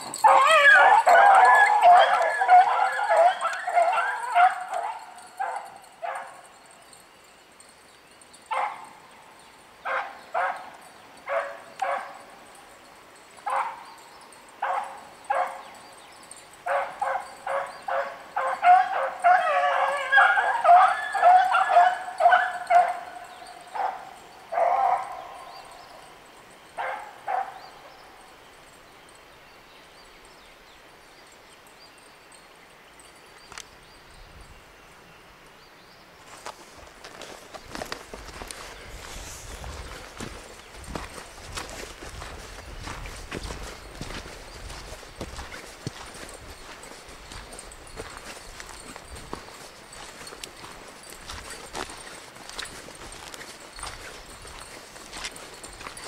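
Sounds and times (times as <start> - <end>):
dogs baying: 0.0 - 6.7, 9.8 - 26.2, 26.8 - 28.2, 37.7 - 56.0.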